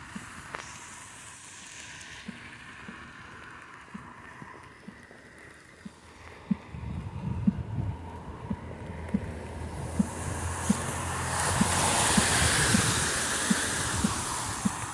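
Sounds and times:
steady outdoor hiss: 0:00.0 - 0:14.9
footsteps on wet pavement: 0:05.9 - 0:14.9
wind buffeting microphone: 0:06.5 - 0:14.9.

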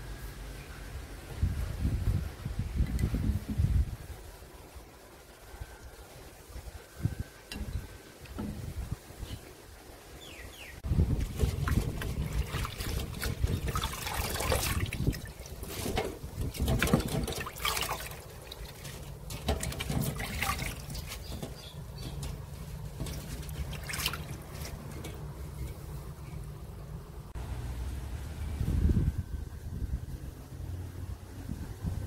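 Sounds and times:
wet leaves rustling: 0:00.0 - 0:31.5
water splashing in a sink: 0:10.9 - 0:26.4.

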